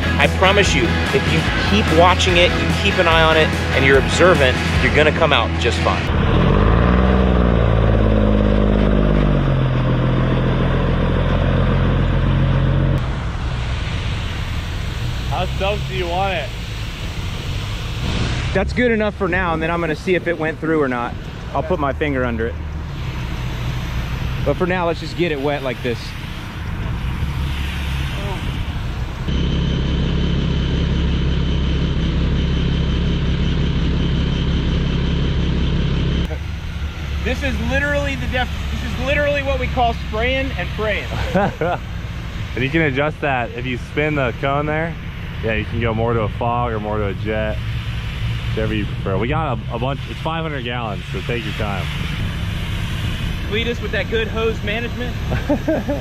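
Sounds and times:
diesel engine running: 0.0s - 56.0s
faint high whine: 13.0s - 56.0s.

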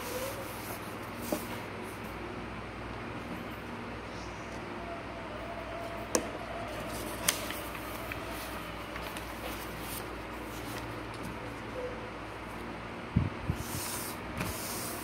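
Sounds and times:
paper rustling: 6.8s - 11.4s.

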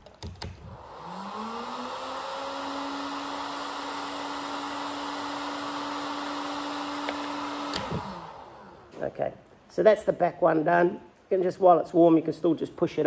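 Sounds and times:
heat gun fan whine: 0.2s - 9.0s
heat gun switch click: 7.0s - 8.3s.

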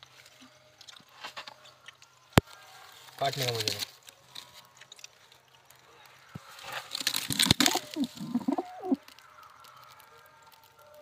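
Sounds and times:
rustling in nest box: 6.4s - 9.0s
pigeons cooing: 6.6s - 9.2s.

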